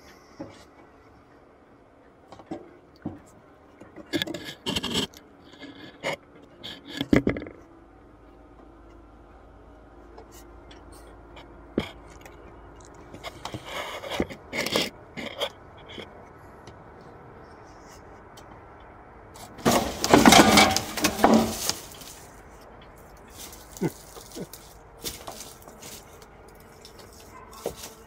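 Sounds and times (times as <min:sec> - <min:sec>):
wooden hive parts scraping: 0:04.1 - 0:07.2, 0:13.1 - 0:16.1, 0:19.4 - 0:22.5, 0:23.1 - 0:28.0.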